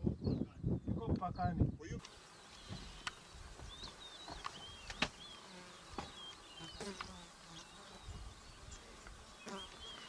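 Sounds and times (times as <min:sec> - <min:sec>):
flying insect buzzing: 0:02.0 - 0:10.0.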